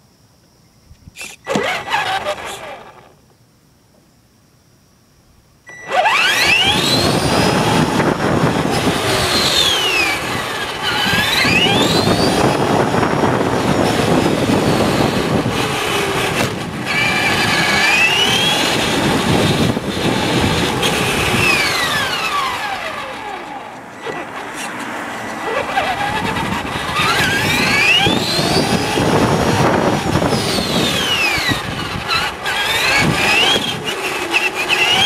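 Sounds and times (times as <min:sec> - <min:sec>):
toy car motor whining: 0:01.2 - 0:03.2, 0:05.7 - 0:35.0
tyres rumbling on asphalt: 0:05.9 - 0:35.0.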